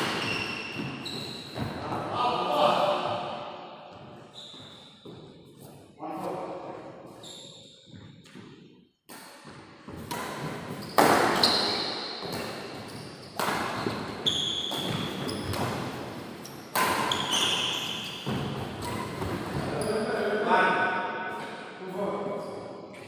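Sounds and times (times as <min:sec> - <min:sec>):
racquets hitting shuttlecock: 0:09.1 - 0:19.7.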